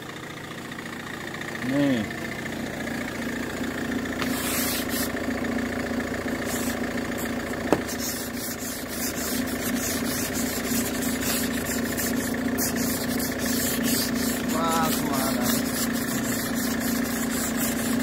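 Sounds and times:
engine idling: 0.0s - 18.0s
ice scraper rasping on windscreen: 4.2s - 5.1s, 7.8s - 18.0s.

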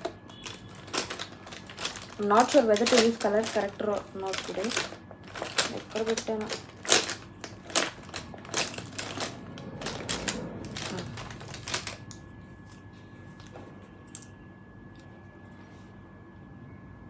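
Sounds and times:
plastic containers clattering: 0.0s - 12.2s
faint high whine: 11.0s - 17.0s.

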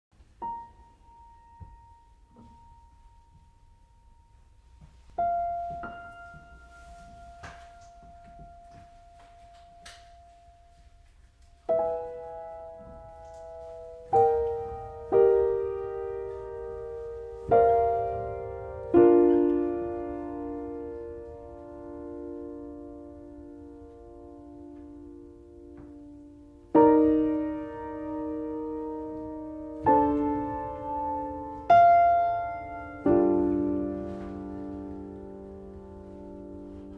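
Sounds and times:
grand piano notes and chords: 0.2s - 36.9s.

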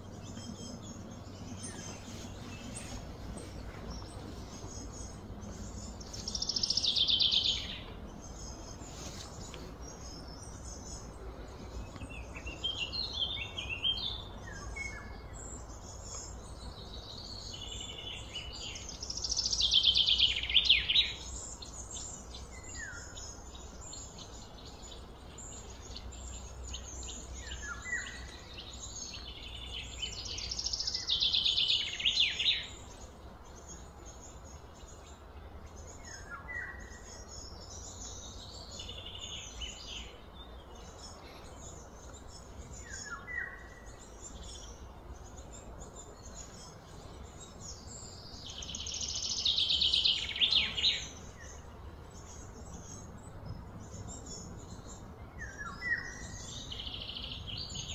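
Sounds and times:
low background rumble: 0.0s - 31.9s
birds chirping: 0.0s - 57.9s.

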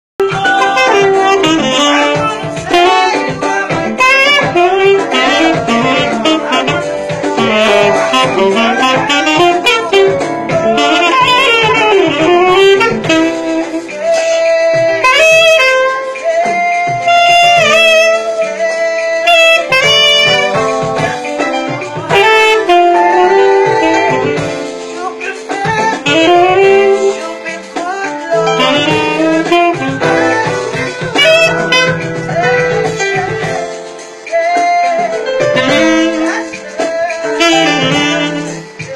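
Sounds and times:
saxophone melody: 0.2s - 38.9s.

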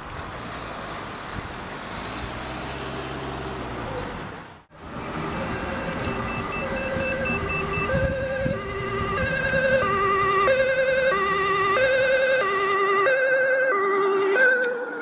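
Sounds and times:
two-tone ambulance siren: 4.7s - 15.0s.

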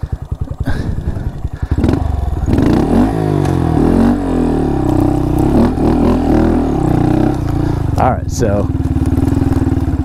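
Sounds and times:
motorcycle engine idling and revving: 0.0s - 10.0s.

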